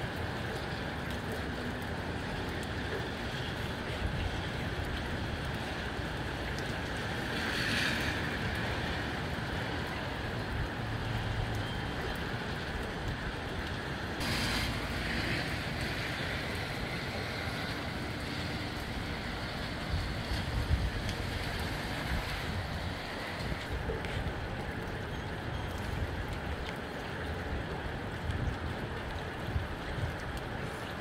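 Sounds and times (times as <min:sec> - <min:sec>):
wind rushing through trees: 0:01.8 - 0:31.0
wind buffeting microphone: 0:12.3 - 0:31.0.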